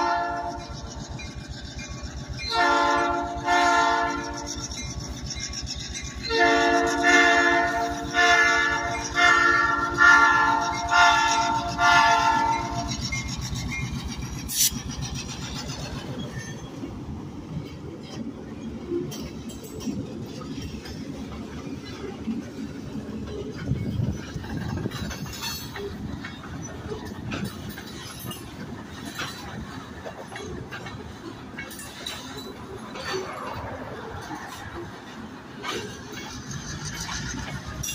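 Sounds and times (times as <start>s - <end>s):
locomotive air horn blasts: 0.0s - 0.7s, 2.5s - 4.5s, 6.3s - 12.9s
train wheels rumbling: 0.0s - 37.9s.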